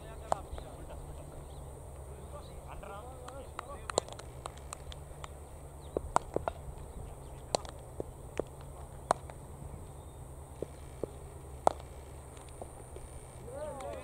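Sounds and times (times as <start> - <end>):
steady low rumble: 0.0 - 14.0
sharp clicks and knocks: 3.2 - 5.4, 6.0 - 9.4.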